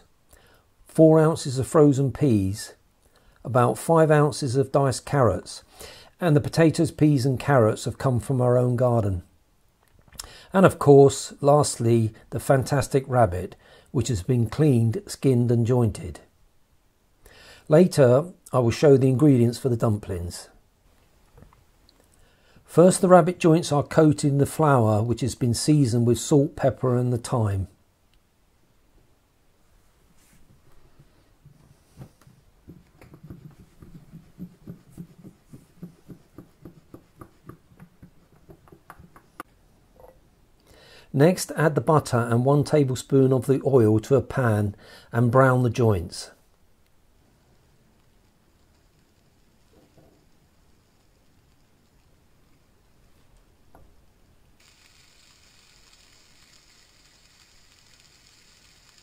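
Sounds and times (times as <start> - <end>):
meat sizzling in a frying pan: 54.6 - 59.0.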